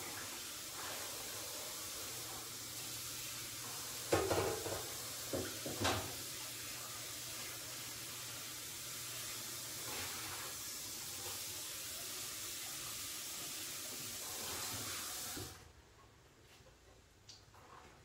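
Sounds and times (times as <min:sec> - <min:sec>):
bowl being washed: 0:00.0 - 0:15.6
tap running into sink: 0:04.0 - 0:06.3.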